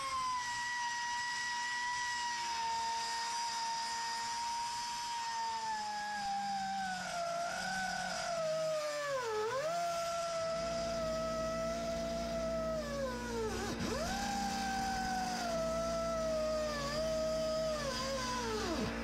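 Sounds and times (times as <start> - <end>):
cut-off wheel whining through metal: 0.0 - 19.0
low steady hum: 9.2 - 19.0.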